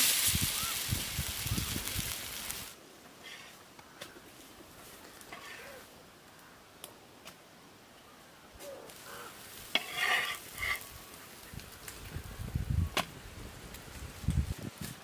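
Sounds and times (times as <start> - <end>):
faint sizzling on griddle: 0.0 - 3.6, 4.8 - 5.9, 8.8 - 15.0
spatula scraping griddle: 3.2 - 3.6, 5.2 - 5.8, 9.5 - 10.9
spatula clinking on griddle: 9.8 - 10.8.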